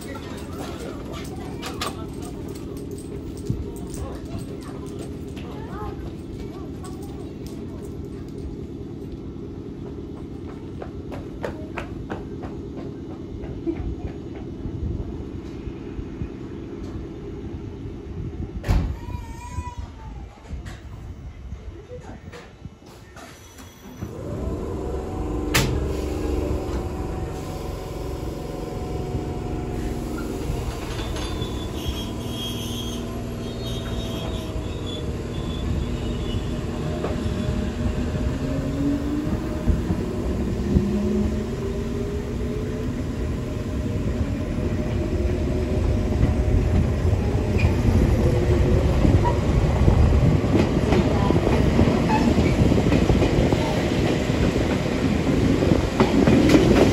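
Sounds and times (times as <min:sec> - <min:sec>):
train wheels clacking on rails: 0:00.0 - 0:14.7, 0:22.3 - 0:56.9
electric train motors whining: 0:23.9 - 0:50.2.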